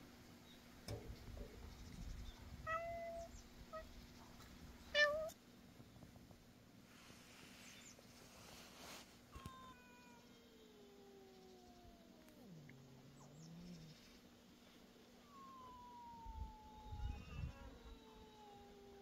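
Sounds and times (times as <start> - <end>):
cat meowing: 2.6 - 3.9, 4.9 - 5.4, 9.3 - 12.6, 15.2 - 19.0.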